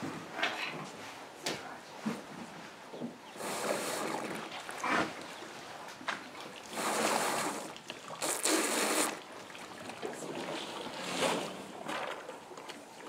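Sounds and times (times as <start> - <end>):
water splashing and trickling: 3.4 - 13.0.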